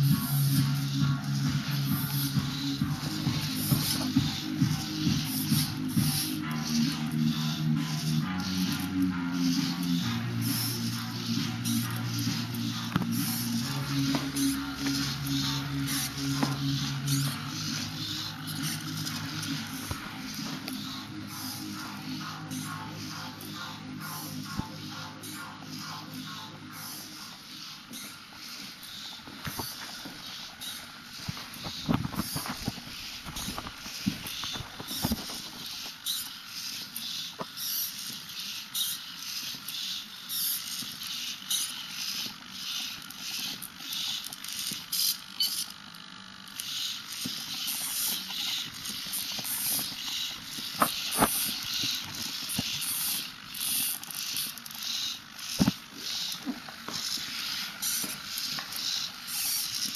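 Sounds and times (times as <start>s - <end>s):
servo motors whirring: 0.0s - 59.9s
robot legs tapping wooden floor: 29.3s - 36.0s.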